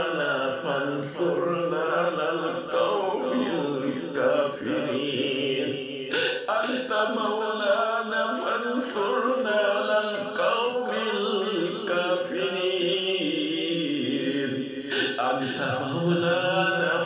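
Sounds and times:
person chanting melodically: 0.0s - 17.0s.

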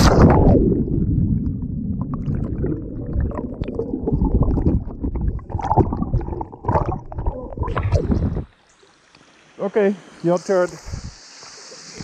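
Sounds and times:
bubbles clicking and crackling: 0.0s - 8.5s
underwater water churning rumble: 0.0s - 8.5s.

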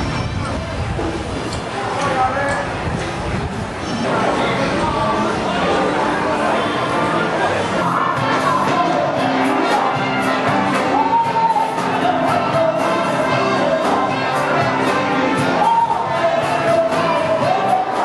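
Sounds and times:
live band music: 6.4s - 18.0s.

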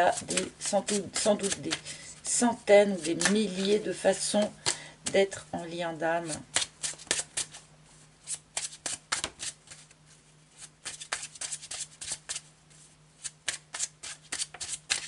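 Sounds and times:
cards being shuffled: 0.0s - 1.8s, 3.0s - 3.8s, 6.2s - 7.6s, 8.2s - 10.0s, 10.6s - 12.5s, 13.2s - 15.0s.

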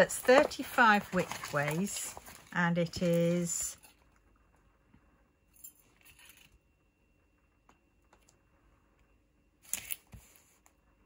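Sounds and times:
plastic film rustling and crinkling: 0.0s - 3.8s.

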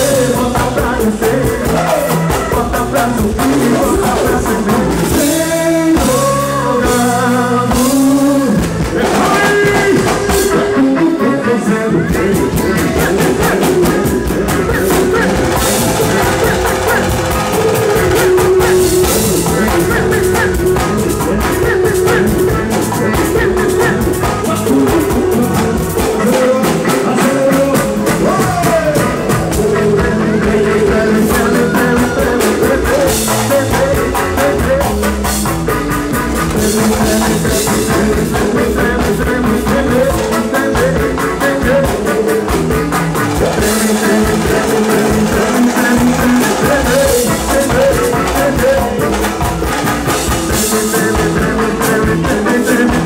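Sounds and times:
drum kit: 0.0s - 53.0s
electric guitar: 0.0s - 53.0s
person singing: 0.0s - 53.0s
hand drums: 12.4s - 53.0s.

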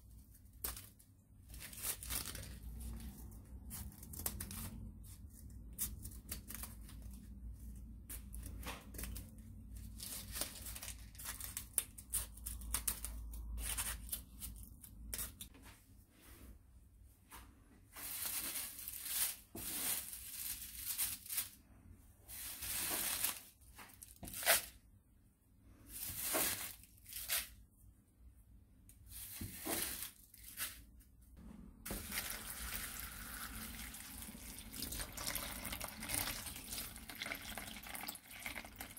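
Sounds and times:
water pouring into bowl: 32.0s - 38.9s.

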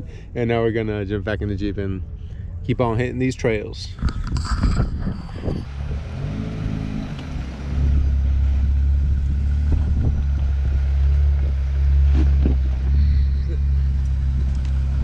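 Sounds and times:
car engine running low: 3.9s - 15.0s.

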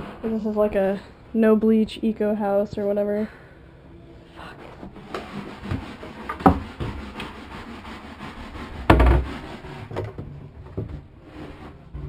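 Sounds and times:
wooden knocks: 5.1s - 7.4s, 8.8s - 11.0s.

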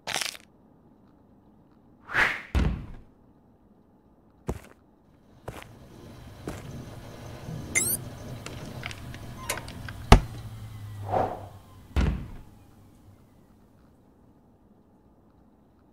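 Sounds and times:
heavy thud: 2.6s - 3.1s, 10.0s - 12.8s
low steady hum: 5.1s - 13.8s.

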